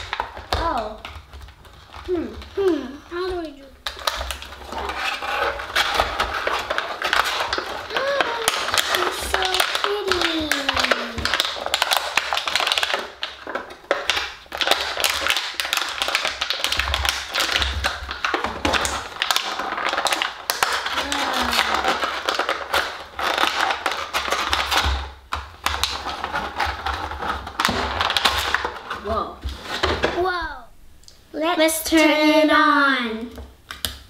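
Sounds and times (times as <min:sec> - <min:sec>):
plastic packaging clicking and crackling: 0:00.0 - 0:30.2.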